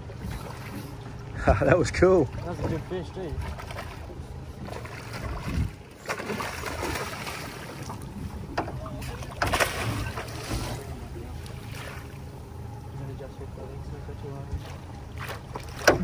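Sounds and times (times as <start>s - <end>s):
low steady hum: 0.0s - 16.0s
fish splashing in water: 2.3s - 8.2s, 8.8s - 12.3s
landing net pushed into water: 9.0s - 10.9s.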